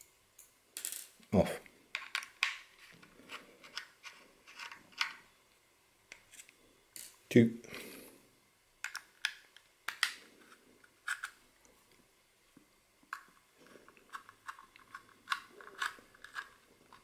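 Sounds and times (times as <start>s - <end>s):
screwdriver clicks and scrapes: 14.1s - 17.0s.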